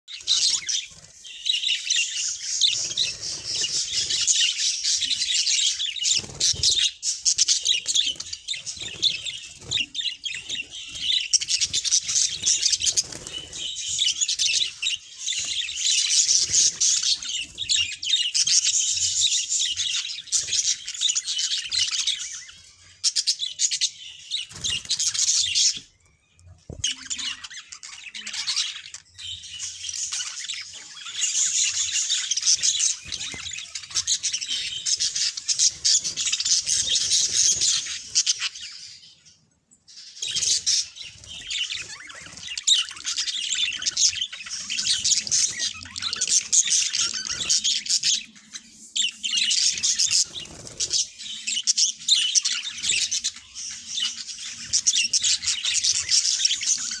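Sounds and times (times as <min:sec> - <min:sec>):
budgerigars chirping and squawking: 0:00.1 - 0:57.0.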